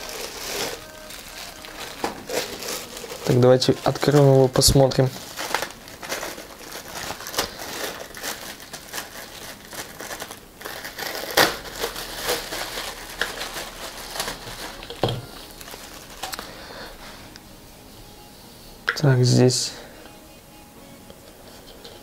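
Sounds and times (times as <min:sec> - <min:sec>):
plastic bag crinkling: 0:00.0 - 0:17.4.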